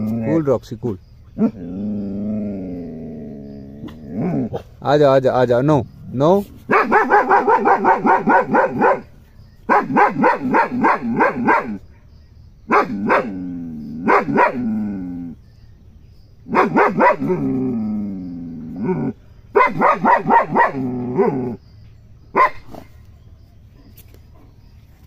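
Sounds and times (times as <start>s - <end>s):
dog barking rapidly: 6.7s - 11.8s, 12.7s - 13.4s, 14.0s - 14.8s, 16.5s - 17.5s, 19.5s - 21.5s, 22.3s - 22.9s.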